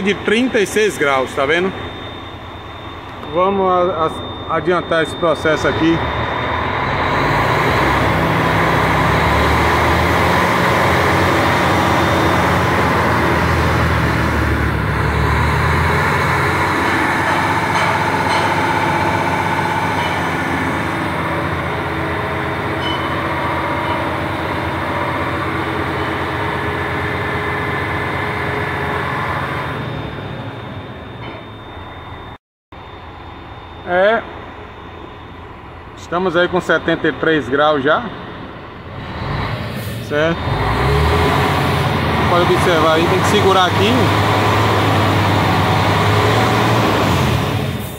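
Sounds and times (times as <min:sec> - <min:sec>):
diesel truck engine at raised revs: 0:00.0 - 0:31.2, 0:34.9 - 0:47.9.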